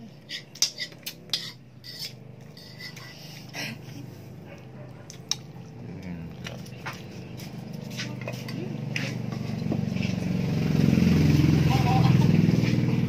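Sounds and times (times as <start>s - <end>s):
motorcycle engine: 0.0s - 13.0s
fork scraping plastic pot: 0.2s - 3.5s.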